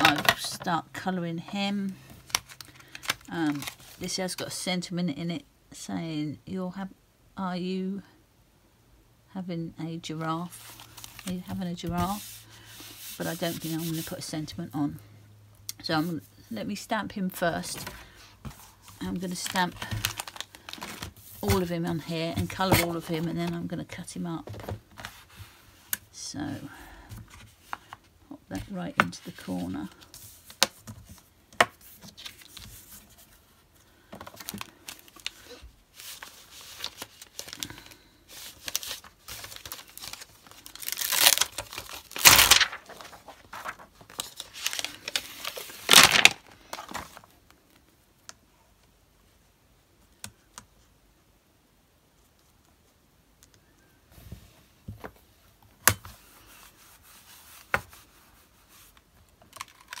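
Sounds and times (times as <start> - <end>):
plastic sheet crinkling: 2.1 - 4.1, 18.6 - 23.6, 34.2 - 47.8, 58.7 - 60.0.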